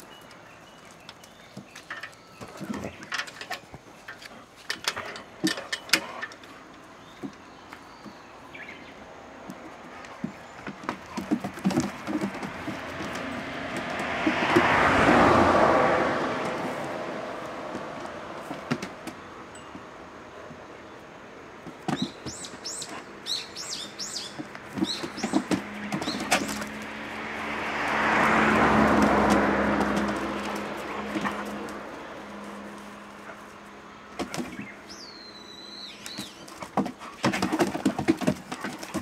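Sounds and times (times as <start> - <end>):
vehicle passing: 0.0 - 21.6, 22.3 - 39.0.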